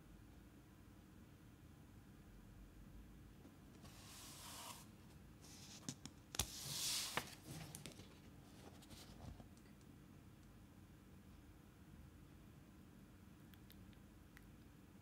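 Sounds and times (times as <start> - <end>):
paper rustling: 5.5 - 9.5.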